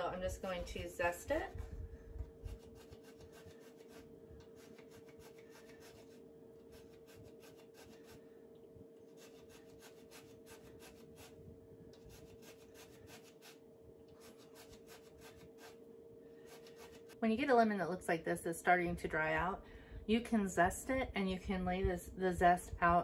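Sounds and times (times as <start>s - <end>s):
lemon rind scraping on grater: 2.4s - 8.2s, 9.1s - 11.4s, 12.0s - 13.6s, 14.2s - 15.8s.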